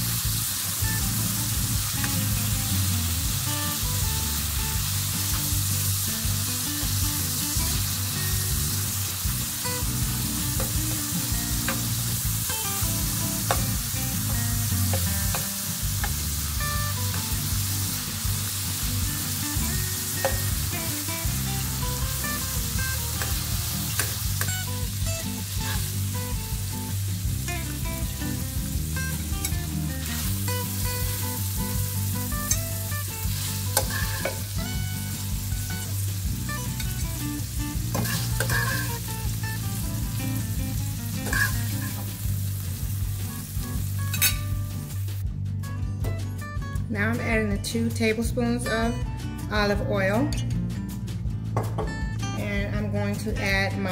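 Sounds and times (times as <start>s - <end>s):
beef sizzling in hot oil: 0.0s - 45.2s
metal fork scraping pan: 33.8s - 34.4s, 37.9s - 39.0s, 41.2s - 41.7s, 44.1s - 44.4s.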